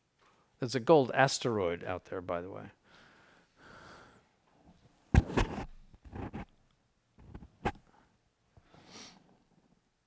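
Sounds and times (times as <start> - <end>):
microphone rustling and scuffing: 4.6 - 6.5, 7.2 - 8.1
thumps on microphone: 5.1 - 6.4.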